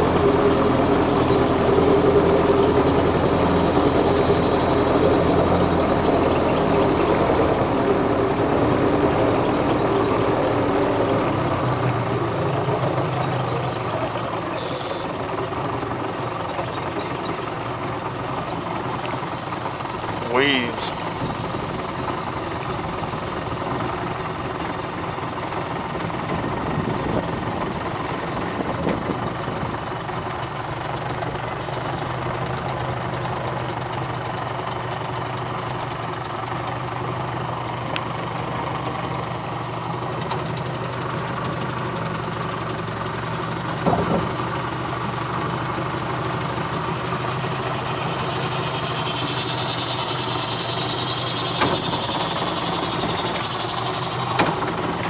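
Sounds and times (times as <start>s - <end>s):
outboard motor idling: 0.0s - 55.0s.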